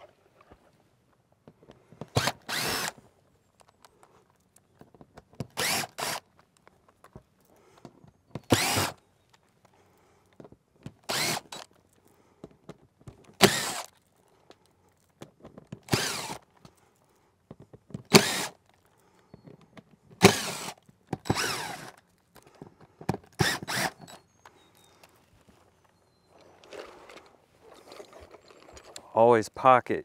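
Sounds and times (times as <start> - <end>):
cordless drill backing out screws: 2.0 - 3.9, 4.8 - 6.4, 7.8 - 9.0, 10.8 - 11.8, 13.2 - 13.9, 15.7 - 16.6, 17.9 - 18.7, 19.3 - 29.1.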